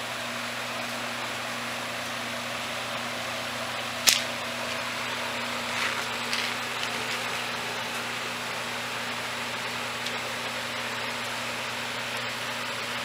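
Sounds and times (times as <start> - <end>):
soft scuffs: 5.6 - 7.3.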